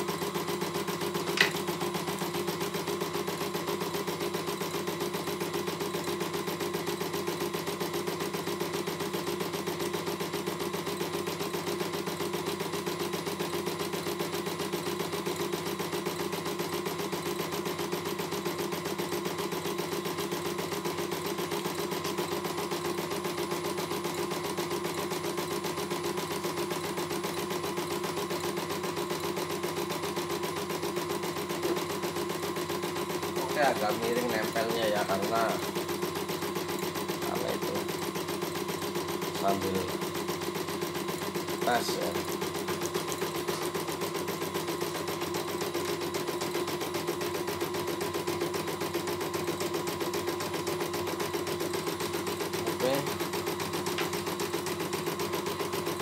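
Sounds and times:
motor hum: 0.0 - 56.0
embroidery machine needle stitching: 20.6 - 56.0.

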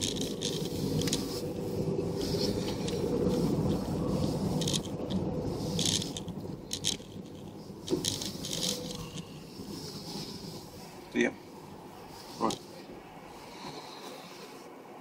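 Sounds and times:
light rattles and clicks: 0.0 - 9.8
vehicle rumble from inside cabin: 0.0 - 14.7.

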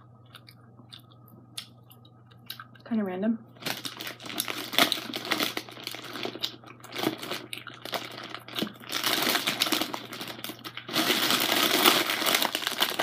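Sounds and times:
plastic bag crinkling: 3.6 - 13.0.

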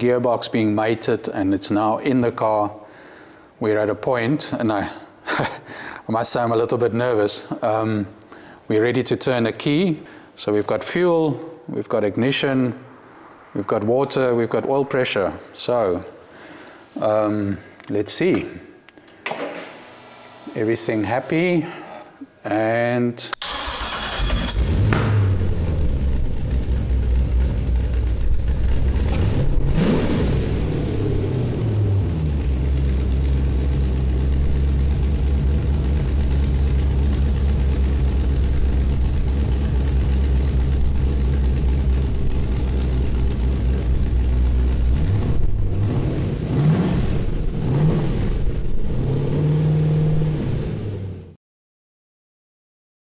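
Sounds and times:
car engine revving and idling: 24.1 - 51.3.

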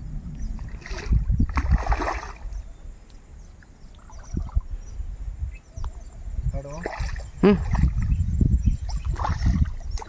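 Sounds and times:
wind rumble on microphone: 0.0 - 10.0
fish splashing in water: 0.6 - 2.5, 8.9 - 10.0.

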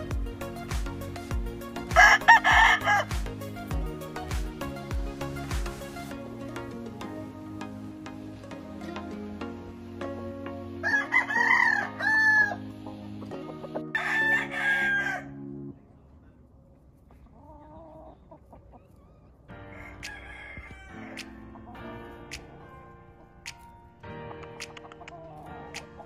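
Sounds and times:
background music: 0.0 - 15.9, 19.5 - 26.0
rooster crowing: 2.0 - 3.1, 10.8 - 12.6, 13.9 - 15.4, 19.6 - 21.2.

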